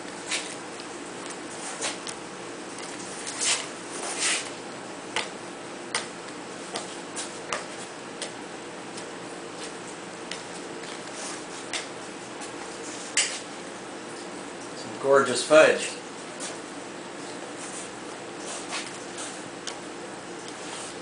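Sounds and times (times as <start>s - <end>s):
bench scraper scraping on stone: 3.2s - 4.5s.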